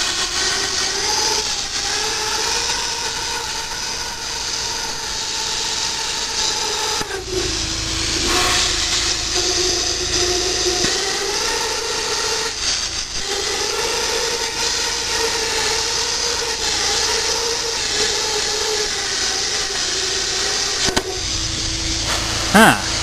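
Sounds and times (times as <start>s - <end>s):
plasma arc hum: 0.0s - 23.0s
plasma cutter air hiss: 0.0s - 23.0s.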